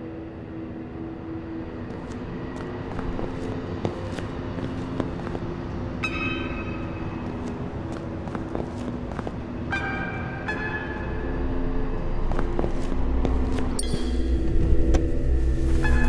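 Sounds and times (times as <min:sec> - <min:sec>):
city traffic hum: 0:00.0 - 0:16.0
footsteps on pavement: 0:01.9 - 0:05.7, 0:06.8 - 0:09.5, 0:12.3 - 0:15.1.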